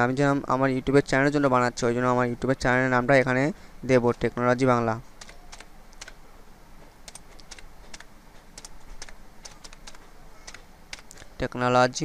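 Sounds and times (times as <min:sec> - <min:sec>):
keyboard keystroke clicks: 0:05.2 - 0:06.2, 0:07.1 - 0:11.2.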